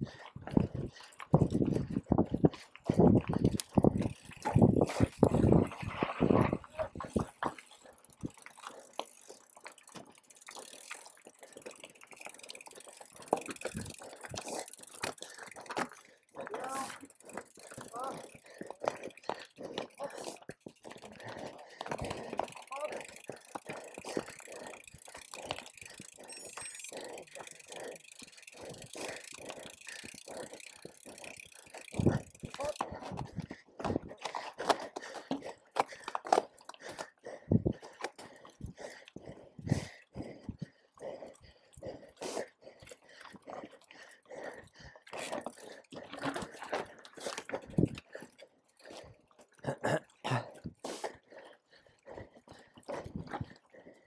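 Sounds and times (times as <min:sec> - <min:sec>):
mountain bike rattling: 0:00.0 - 0:54.0
rider panting: 0:00.0 - 0:54.0
tyre noise: 0:02.9 - 0:11.0.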